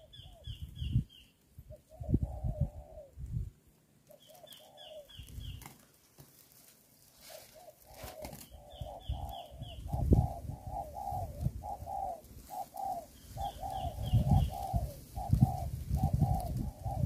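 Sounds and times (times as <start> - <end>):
doves cooing: 0.0 - 0.7, 1.6 - 3.3, 3.9 - 6.5, 7.1 - 17.0
high falling bird chirps: 7.4 - 17.0.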